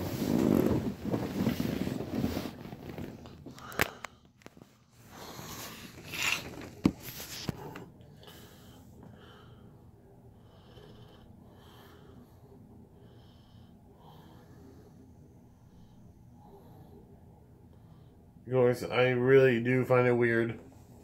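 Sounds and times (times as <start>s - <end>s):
man breathing quietly: 3.3s - 6.1s, 7.0s - 18.4s
phone rustling: 5.5s - 7.9s.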